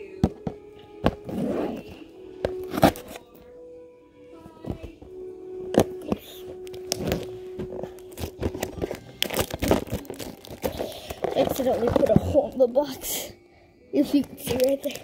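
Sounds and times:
crinkling: 0.1 - 3.5, 4.4 - 12.8, 14.0 - 15.0
cardboard tearing: 2.6 - 3.2, 6.7 - 12.5.

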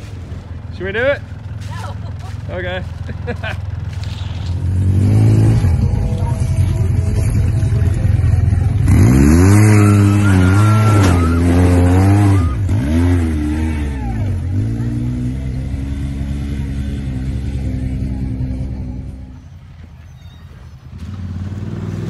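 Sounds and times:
wheels spinning in mud: 1.6 - 15.3
utv engine revving: 3.7 - 19.4, 20.9 - 22.0.

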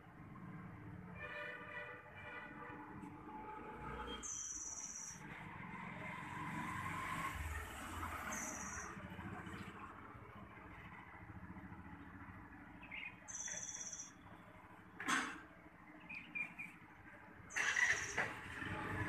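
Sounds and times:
distant traffic rumble: 0.0 - 19.0
high bird trills: 4.1 - 5.3, 8.3 - 8.9, 12.8 - 14.3, 17.5 - 18.2.

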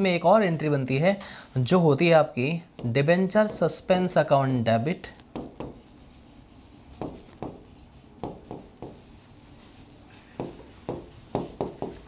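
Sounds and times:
marker writing on whiteboard: 2.8 - 4.0, 5.0 - 12.0.

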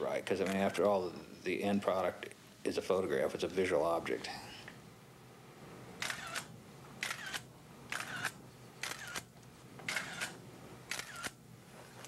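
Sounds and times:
camera shutter clicking: 6.0 - 9.3, 9.9 - 11.4
film winding whir: 6.0 - 9.3, 9.9 - 11.4.

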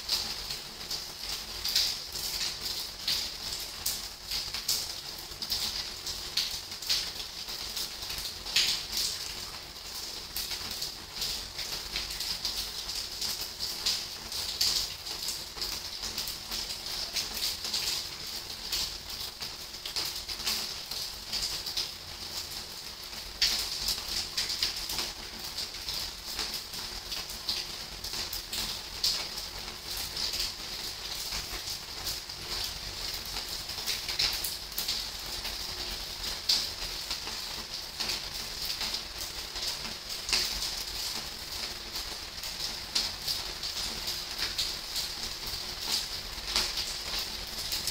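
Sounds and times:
rain hiss: 0.0 - 47.9
raindrops tapping on hard surface: 31.2 - 45.2.

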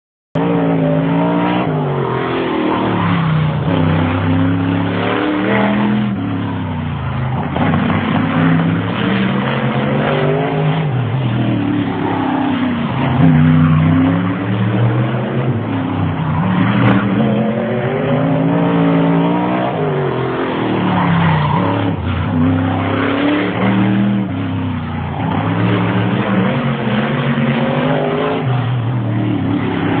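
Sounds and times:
race car engine revving: 0.4 - 30.0.

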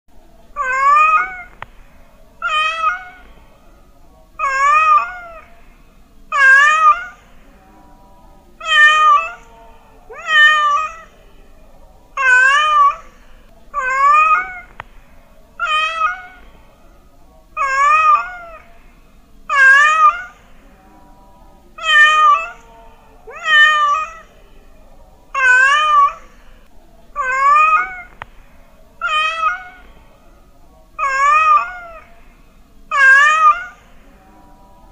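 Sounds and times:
cat meowing: 0.6 - 1.6, 2.4 - 3.3, 4.4 - 5.5, 6.3 - 7.2, 8.6 - 9.5, 10.1 - 11.2, 12.2 - 13.1, 13.8 - 14.8, 15.6 - 16.5, 17.6 - 18.7, 19.5 - 20.4, 21.8 - 22.7, 23.3 - 24.3, 25.4 - 26.2, 27.2 - 28.2, 29.0 - 29.9, 31.0 - 32.1, 32.9 - 33.9.

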